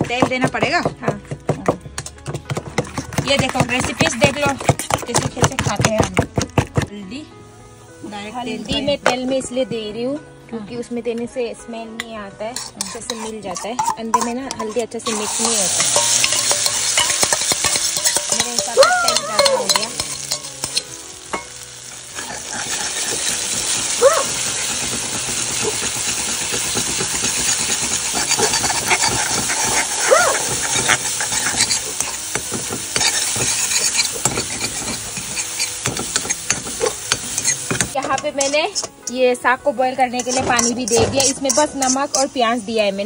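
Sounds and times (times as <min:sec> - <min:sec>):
oil sizzling in a wok: 0:07.4 - 0:08.7, 0:12.5 - 0:43.0
spoon scraping a pan: 0:12.0 - 0:39.3, 0:40.1 - 0:42.6.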